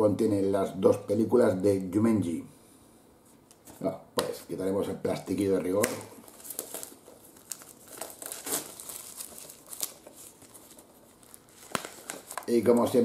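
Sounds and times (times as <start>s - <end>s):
plastic wrap crinkling and tearing: 5.7s - 13.0s.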